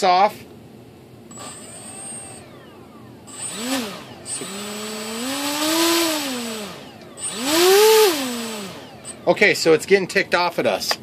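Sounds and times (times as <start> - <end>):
motor and propeller whine: 1.3 - 9.8.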